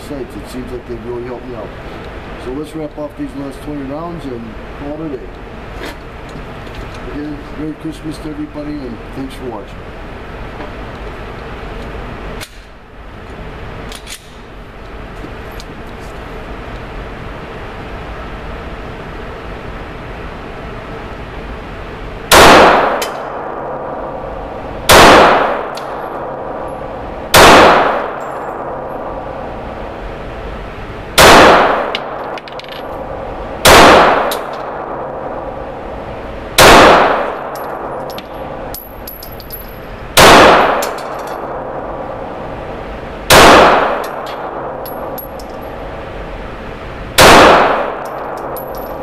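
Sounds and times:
pistol shots ringing indoors: 22.3 - 29.7, 31.2 - 36.0, 36.6 - 39.0, 40.2 - 42.1, 43.3 - 45.4, 47.2 - 49.0.

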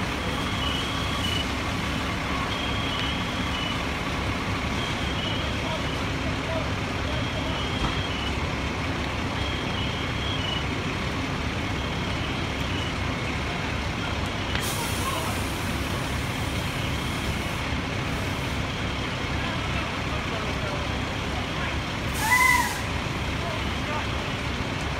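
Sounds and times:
diesel engine running: 0.0 - 24.9
air hissing: 22.2 - 22.9.

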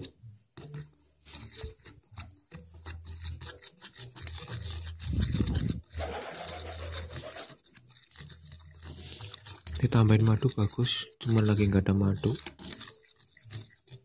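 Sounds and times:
metal spoon stirring in plastic bowl: 0.0 - 14.0
spoon tapping and scraping: 0.0 - 14.0.

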